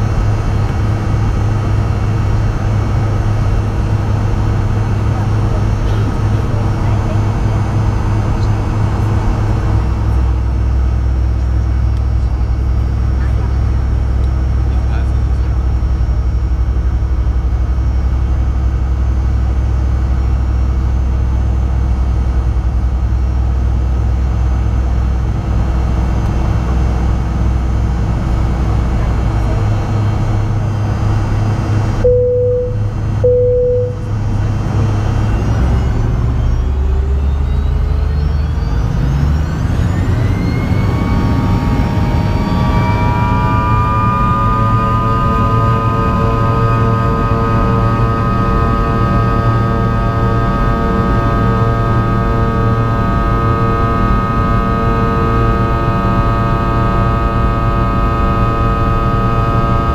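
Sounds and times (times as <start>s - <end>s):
jet engines humming: 0.0s - 59.9s
jet engines spooling up: 0.0s - 59.9s
short beeps: 32.0s - 34.2s.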